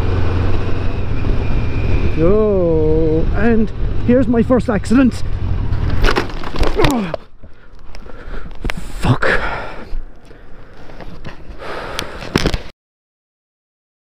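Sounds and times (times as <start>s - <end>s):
hard breathing and gasps: 7.1s - 12.4s.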